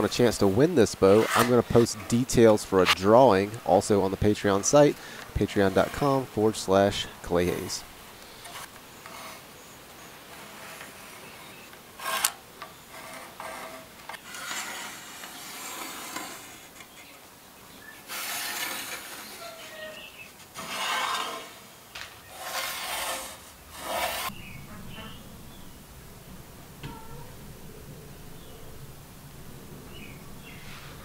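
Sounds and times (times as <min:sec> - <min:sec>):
pencil scratching on wood: 0:01.0 - 0:02.2, 0:12.0 - 0:16.9, 0:22.3 - 0:24.3.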